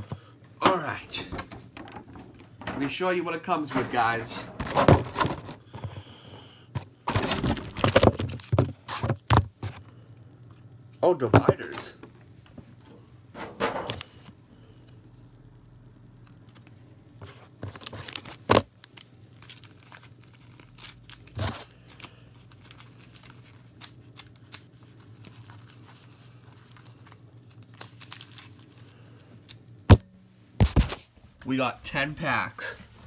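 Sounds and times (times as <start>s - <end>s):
cardboard and plastic tearing: 3.9s - 5.7s, 7.1s - 9.4s, 17.6s - 28.8s.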